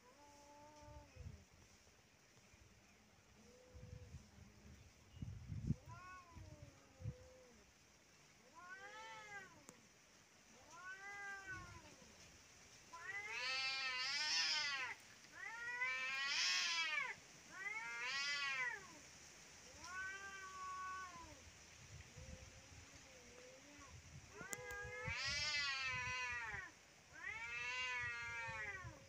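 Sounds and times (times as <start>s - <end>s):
cats yowling: 8.5s - 9.8s, 10.6s - 12.0s, 12.9s - 19.0s, 23.6s - 29.0s.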